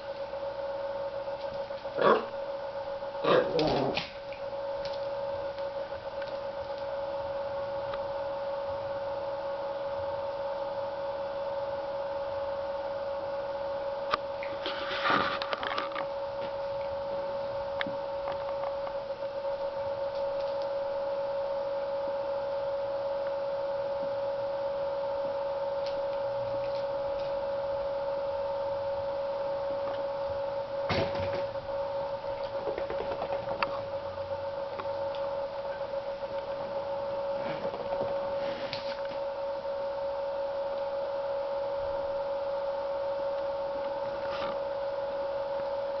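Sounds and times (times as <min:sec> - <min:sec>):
high-pitched electrical hum: 0:00.0 - 0:46.0.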